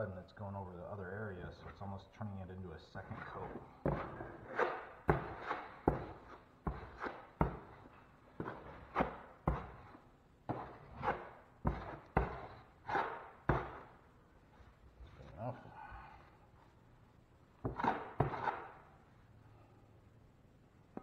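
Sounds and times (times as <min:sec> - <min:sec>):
drywall knife scraping wall: 0:02.9 - 0:14.0, 0:17.6 - 0:18.9.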